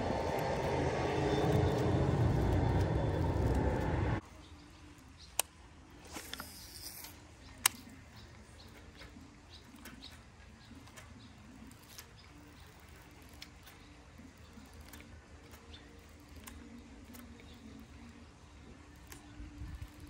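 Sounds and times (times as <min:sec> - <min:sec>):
reel ticking: 0:00.0 - 0:20.0
fishing reel click: 0:05.3 - 0:08.0, 0:11.7 - 0:17.9
fishing line hissing off reel: 0:06.0 - 0:08.0.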